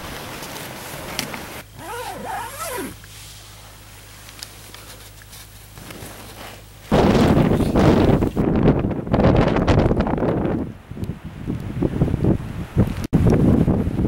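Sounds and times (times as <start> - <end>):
wind buffeting microphone: 6.9 - 14.0.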